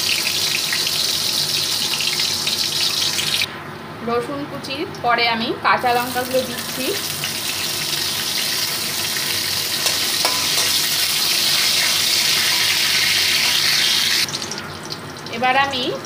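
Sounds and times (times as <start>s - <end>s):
garlic sizzling in hot oil: 0.0s - 3.5s, 5.8s - 16.0s
spatula stirring: 9.8s - 11.0s.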